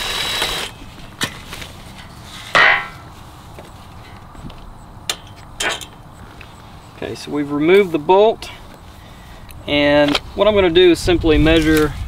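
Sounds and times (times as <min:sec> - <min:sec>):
impact driver running: 0:00.0 - 0:00.7
metal clatter of bolt: 0:05.1 - 0:06.0.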